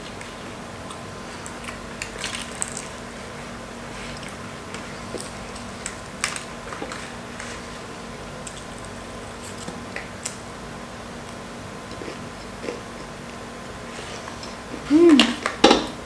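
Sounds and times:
chewing crisp food: 0:00.1 - 0:07.8, 0:08.4 - 0:10.4, 0:11.2 - 0:13.4.

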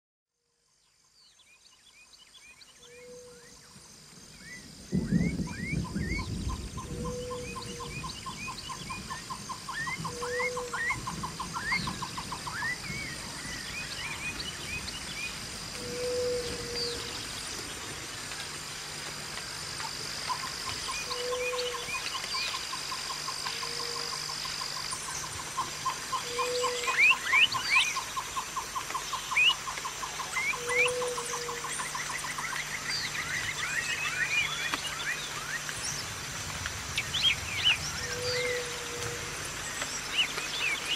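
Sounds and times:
birds chirping: 0:19.8 - 0:36.2, 0:36.8 - 0:40.9.

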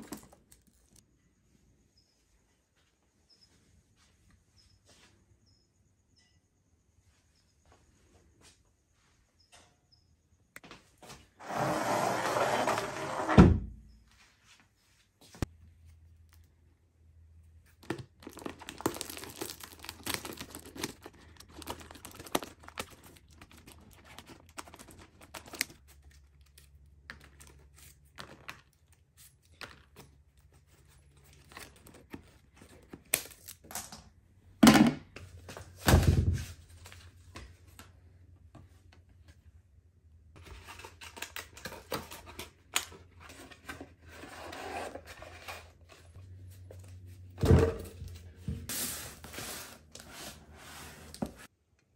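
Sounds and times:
plastic wrap crinkling and tearing: 0:17.8 - 0:29.5.

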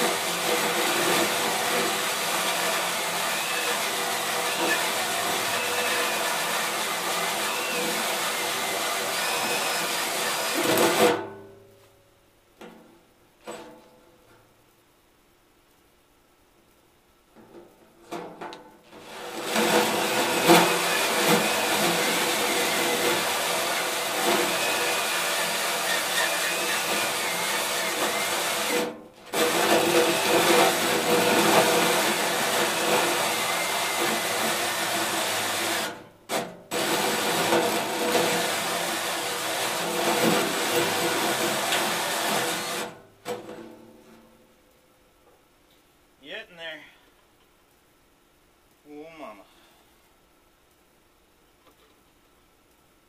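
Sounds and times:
drill hole saw cutting sheet metal: 0:00.0 - 0:11.2, 0:19.0 - 0:43.0.

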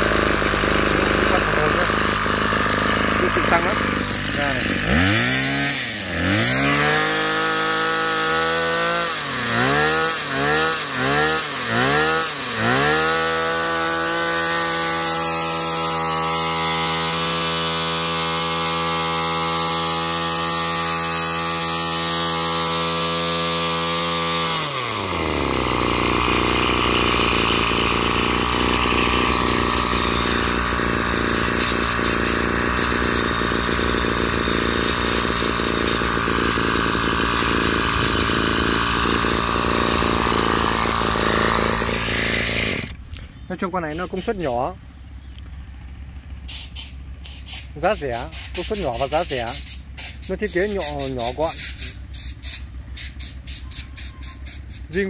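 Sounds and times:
brush cutter engine revving: 0:00.0 - 0:55.0.

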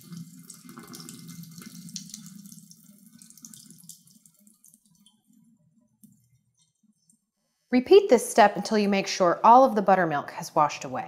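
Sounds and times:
water pouring into a sink: 0:00.0 - 0:05.3
water dripping: 0:00.0 - 0:07.2.

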